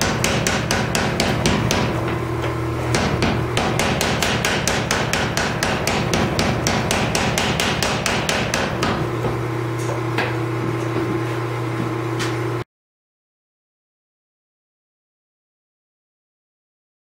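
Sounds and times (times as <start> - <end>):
power hammer pounding metal: 0.0 - 9.7
steady hum: 0.0 - 12.6.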